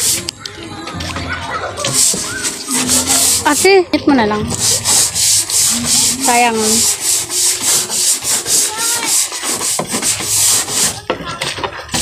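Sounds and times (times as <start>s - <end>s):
sponge scrubbing a wall: 1.8s - 3.8s, 4.5s - 12.0s.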